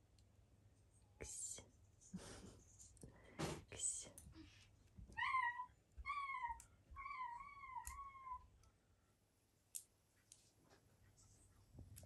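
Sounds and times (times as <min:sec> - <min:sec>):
cat meowing: 0:05.1 - 0:08.5.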